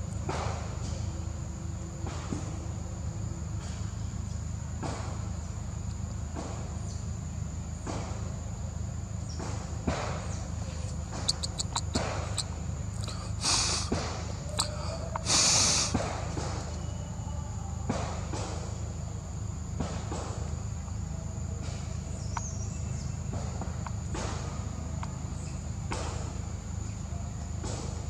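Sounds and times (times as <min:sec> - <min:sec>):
high insect drone: 0:00.0 - 0:28.0
short hissing bursts: 0:10.7 - 0:16.3.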